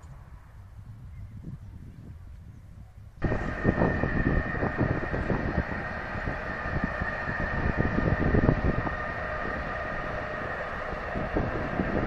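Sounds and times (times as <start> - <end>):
wind buffeting microphone: 0.0 - 12.0
high whine: 3.2 - 12.0
train wheels rumbling on rails: 3.2 - 12.0.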